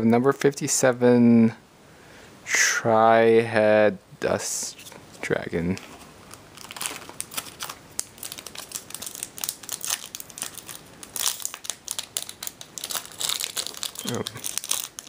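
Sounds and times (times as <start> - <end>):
foil wrapper crinkling: 5.8 - 15.0.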